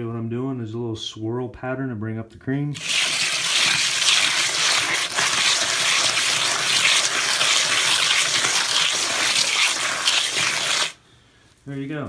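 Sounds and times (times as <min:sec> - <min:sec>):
float scraping wet concrete: 0:02.8 - 0:11.0.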